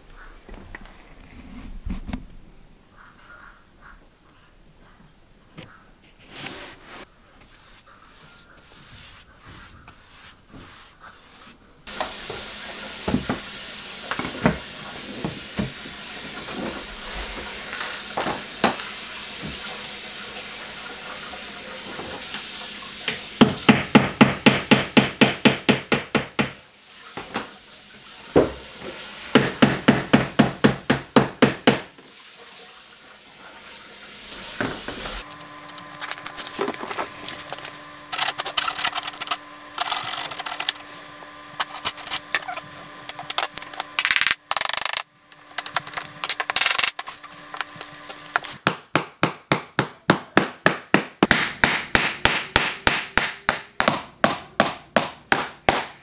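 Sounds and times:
hammer nailing wood: 23.4s - 26.6s, 29.3s - 31.9s, 48.6s - 56.0s.

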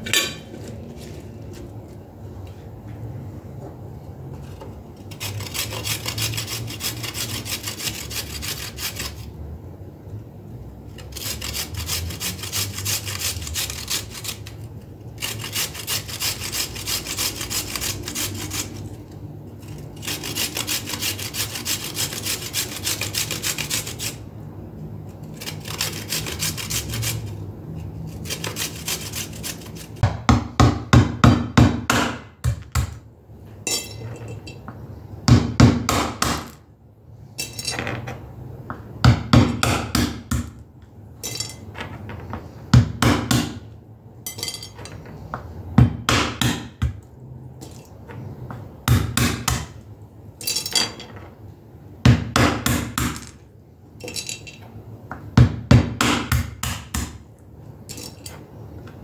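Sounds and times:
rasping back-and-forth strokes: 5.1s - 9.3s, 11.0s - 14.6s, 15.2s - 19.0s, 19.6s - 24.2s, 25.3s - 27.4s, 28.1s - 30.0s.

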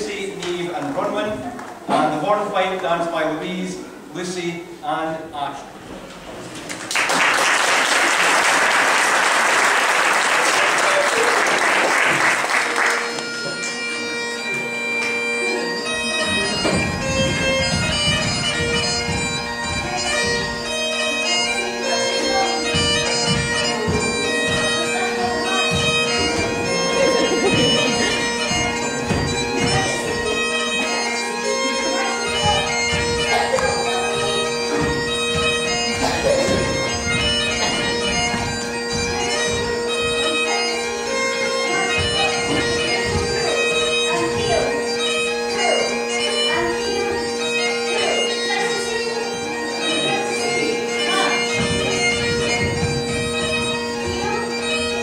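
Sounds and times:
bagpipes playing: 0.0s - 55.0s
audience applause: 6.6s - 13.1s
dancers' steps thudding on stage: 14.4s - 45.0s, 50.5s - 55.0s.

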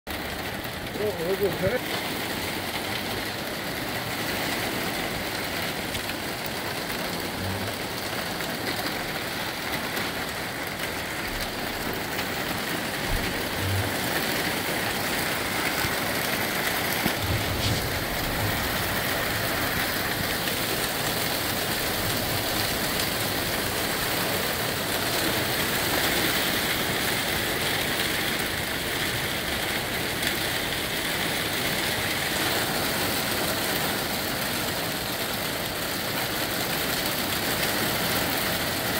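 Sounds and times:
hail and rain falling: 0.1s - 38.9s
gusty wind: 12.9s - 20.9s
low thumps: 17.1s - 19.2s.

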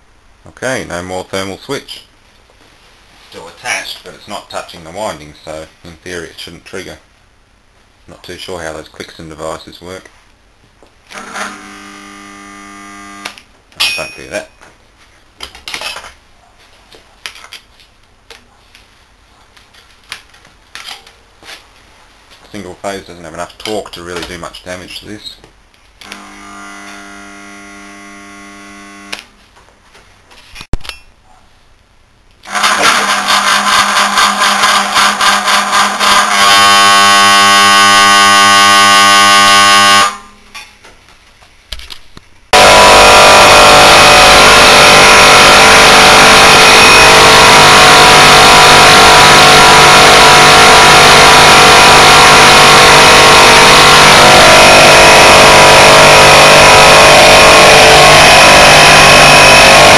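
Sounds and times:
harsh mechanical compressor noise: 32.4s - 38.2s, 42.6s - 59.9s
compressor motor humming: 42.6s - 59.9s.

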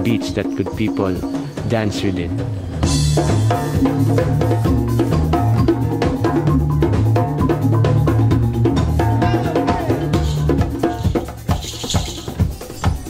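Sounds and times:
hand drums and percussion: 0.0s - 13.0s
electric bass line: 1.6s - 11.1s.

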